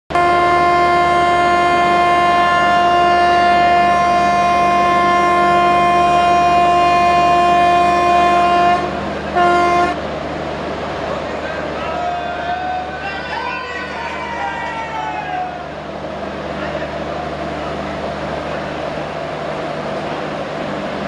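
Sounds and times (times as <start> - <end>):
locomotive air horn blast: 0.1 - 10.0.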